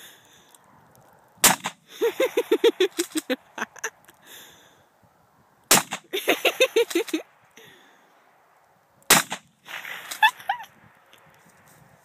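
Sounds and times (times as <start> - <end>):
shotgun blasts: 1.4 - 1.9, 5.7 - 6.1, 9.1 - 10.2.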